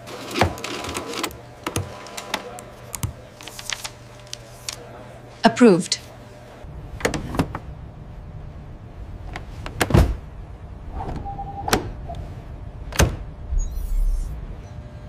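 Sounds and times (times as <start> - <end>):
low hum: 6.5 - 15.0.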